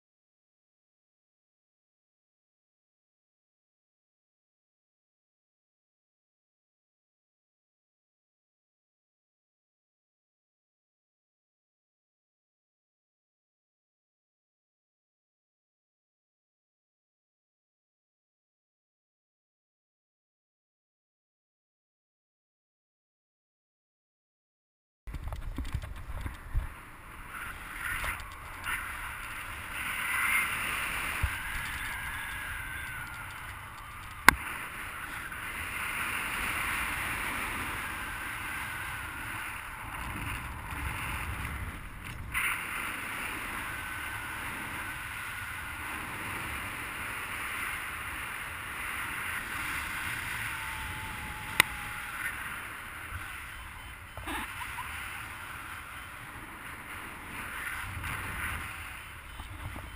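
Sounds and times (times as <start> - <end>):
wind rushing over microphone: 25.1 - 59.9
faint wavering whistles: 27.2 - 35.8.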